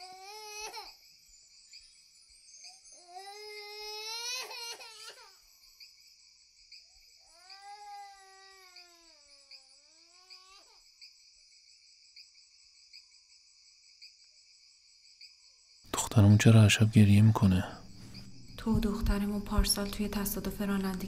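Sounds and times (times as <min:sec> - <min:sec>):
young child crying: 0:00.0 - 0:01.0, 0:03.0 - 0:05.4, 0:07.3 - 0:09.3, 0:09.9 - 0:10.8
crickets chirping: 0:00.0 - 0:21.0.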